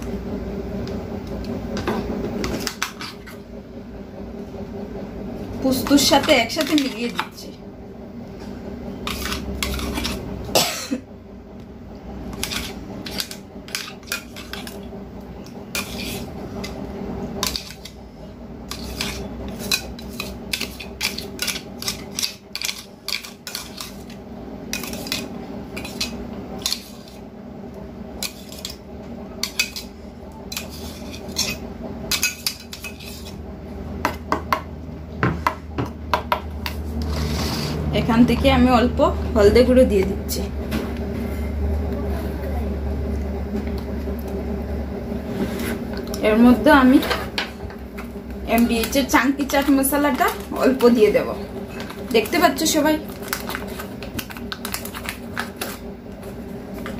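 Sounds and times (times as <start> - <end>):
metal spoon scraping steel jar: 9.0 - 10.2, 12.3 - 14.8, 15.7 - 16.3, 18.7 - 24.1, 30.5 - 33.4.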